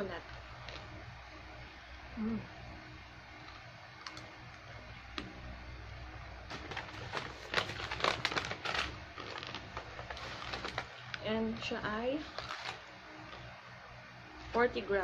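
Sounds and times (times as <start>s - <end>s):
snack bag crinkling: 0.3s - 1.0s, 3.4s - 4.4s, 6.5s - 13.5s.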